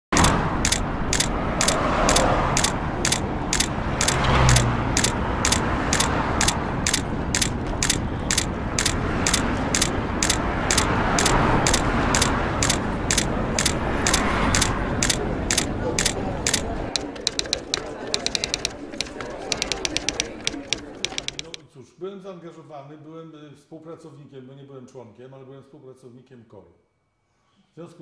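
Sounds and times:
film projector clicking and whirring: 0.2s - 21.6s.

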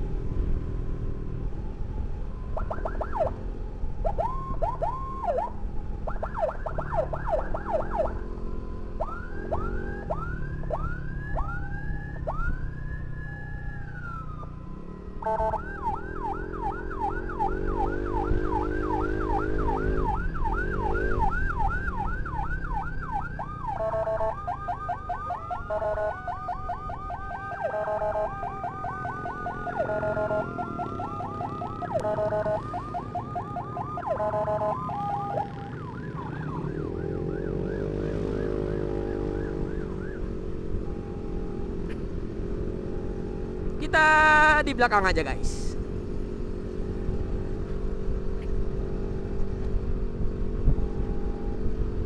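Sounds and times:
wailing siren: 0.0s - 45.1s, 49.8s - 52.0s
sirens yelping: 1.4s - 45.7s
motorcycle engine revving: 6.8s - 43.8s, 45.8s - 52.0s.

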